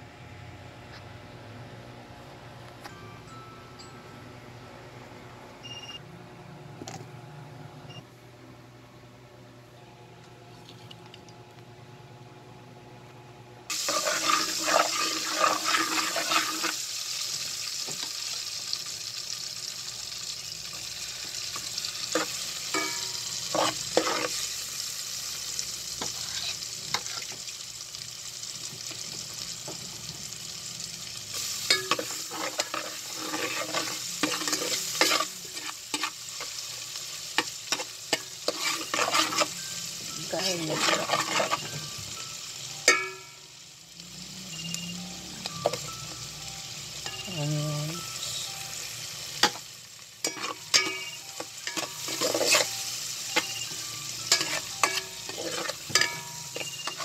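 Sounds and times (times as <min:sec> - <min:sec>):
utensil scraping a pot: 0:13.7 - 0:16.8, 0:22.1 - 0:24.6, 0:31.7 - 0:36.2, 0:37.7 - 0:39.6, 0:40.3 - 0:41.7, 0:51.8 - 0:52.7, 0:54.3 - 0:57.0
oil sizzling in a pot: 0:13.7 - 0:57.0.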